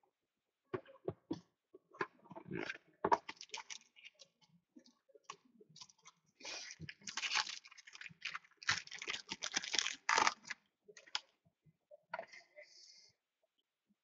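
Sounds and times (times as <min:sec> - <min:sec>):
plastic wrapper crinkling: 0:03.4 - 0:04.2, 0:05.8 - 0:11.2.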